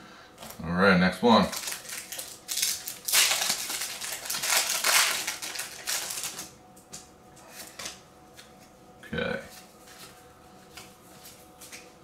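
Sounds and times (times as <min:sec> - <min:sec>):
foil wrapper crinkling and tearing: 0:01.4 - 0:06.5.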